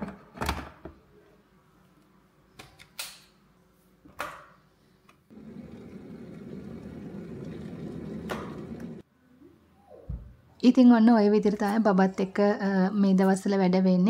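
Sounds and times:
kettle heating water rushing: 5.3s - 9.0s.

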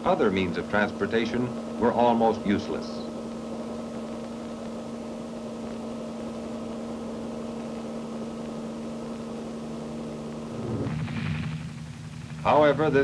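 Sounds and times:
mechanical hum: 0.0s - 13.0s.

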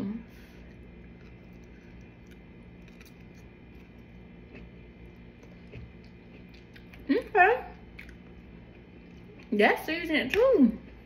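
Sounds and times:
steady low hum: 0.0s - 11.0s
quiet chewing: 0.5s - 7.1s, 7.7s - 9.5s.

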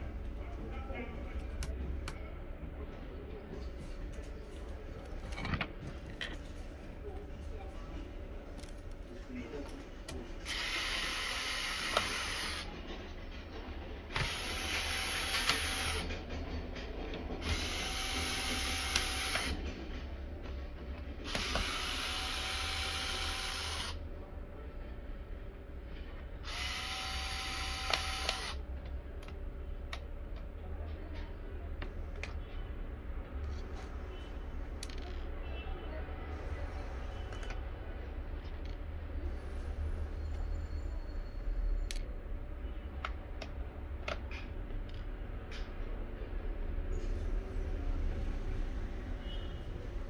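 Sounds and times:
electric screwdriver whine: 10.5s - 12.7s, 14.2s - 16.1s, 17.4s - 19.6s, 21.3s - 24.0s, 26.4s - 28.6s.

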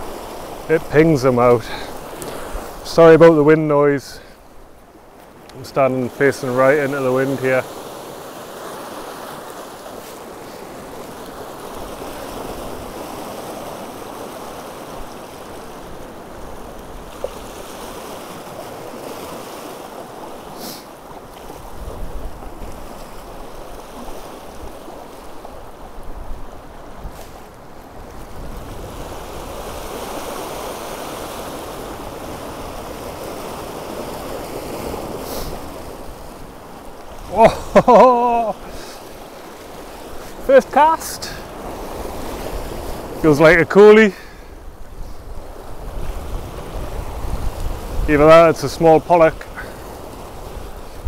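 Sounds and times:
sea waves breaking on rocks: 0.0s - 51.0s
wind buffeting microphone: 44.6s - 48.2s.

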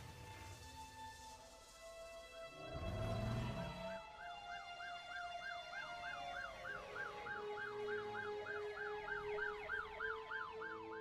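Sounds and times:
steady held siren tones: 1.4s - 11.0s
siren yelping: 3.7s - 11.0s.

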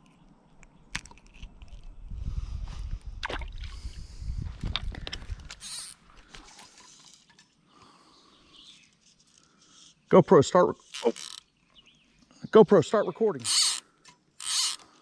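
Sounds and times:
camera handling rumble: 0.0s - 2.2s, 4.4s - 7.1s.

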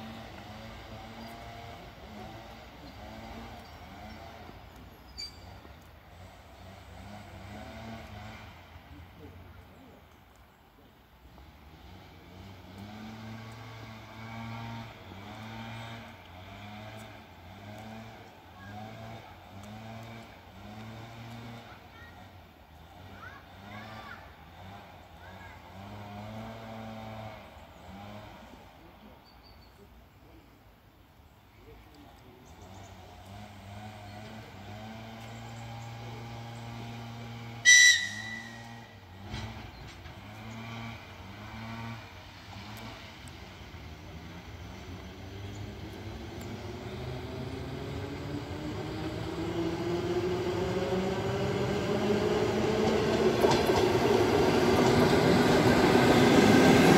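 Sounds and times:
electric train humming: 35.5s - 40.4s, 41.0s - 56.9s
train whistle blast: 37.6s - 39.1s
faint rising whines: 43.9s - 56.9s.

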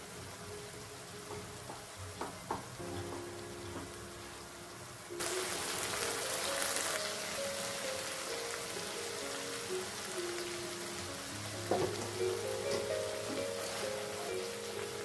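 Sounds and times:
gravy sizzling in a frying pan: 0.0s - 15.0s
slow melodic background music: 0.0s - 15.0s.

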